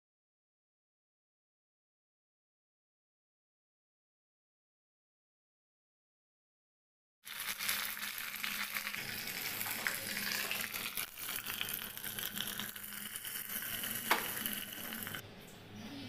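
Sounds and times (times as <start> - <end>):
leaves sizzling in hot oil: 7.2 - 15.2.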